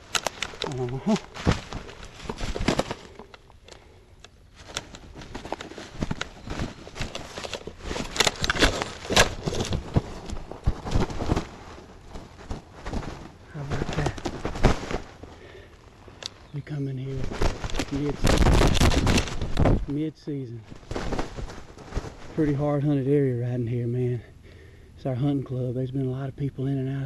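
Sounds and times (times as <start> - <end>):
footsteps crunching dry leaves: 0.0 - 3.3
branches brushing: 0.0 - 20.0, 20.6 - 22.8
twigs crackling: 0.0 - 20.0, 20.6 - 22.8.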